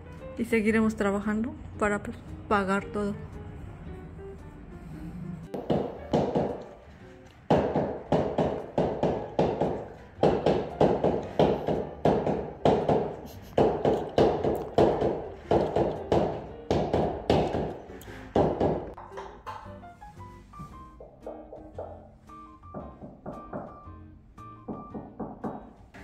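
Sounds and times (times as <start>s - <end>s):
tapping tool knocking on floorboards: 5.6s - 6.7s, 22.7s - 23.8s.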